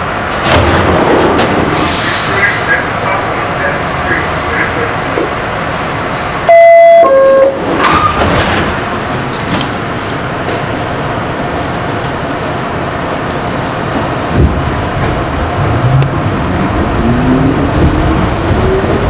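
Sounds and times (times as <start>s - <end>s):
train running noise: 0.0s - 19.0s
subway door-closing chime: 6.2s - 9.7s.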